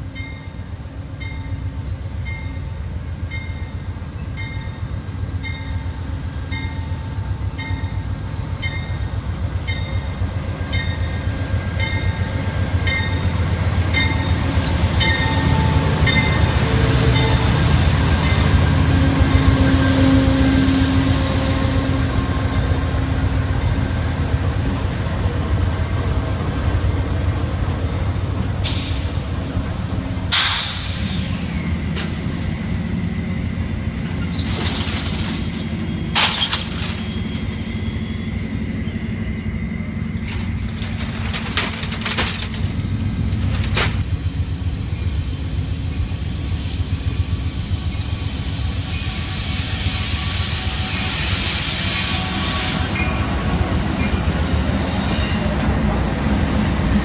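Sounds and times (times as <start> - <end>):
diesel locomotive engines rumbling: 0.0 - 57.0
air brake hisses: 28.6 - 29.2, 30.3 - 31.4
high brake squeal: 28.7 - 40.4, 46.7 - 55.8.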